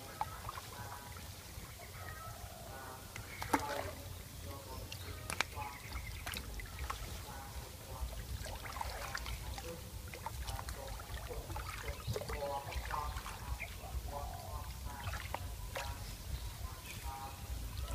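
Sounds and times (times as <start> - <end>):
hands splashing in water: 3.2 - 4.0, 8.4 - 13.5.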